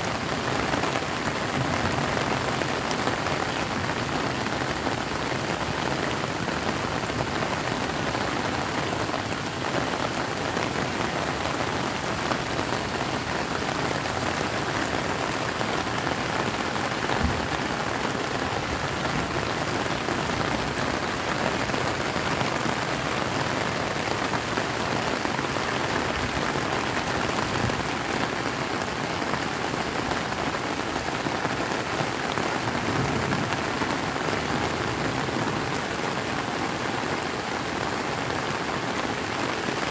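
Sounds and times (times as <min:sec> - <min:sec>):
steady rain falling: 0:00.0 - 0:39.9.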